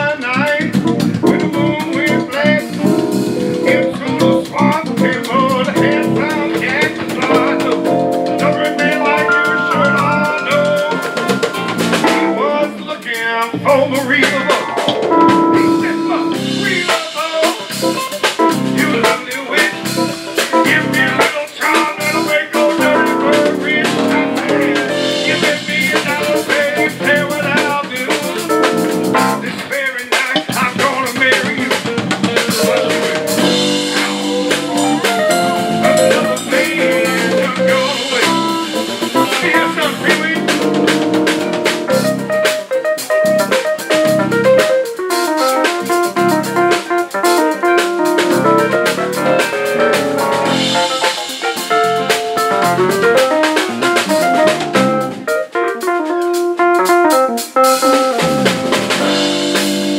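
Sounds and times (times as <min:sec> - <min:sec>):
keyboard: 0:00.0 - 0:55.8, 0:57.0 - 0:59.9
drum kit beat: 0:00.0 - 0:59.9
strummed guitars: 0:02.1 - 0:26.7, 0:29.4 - 0:41.8.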